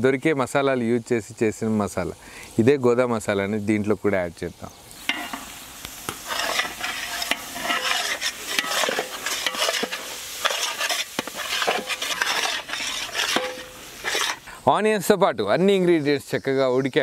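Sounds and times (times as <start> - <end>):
food sizzling in hot oil: 4.9 - 14.6
metal ladle scraping pot: 5.0 - 14.5.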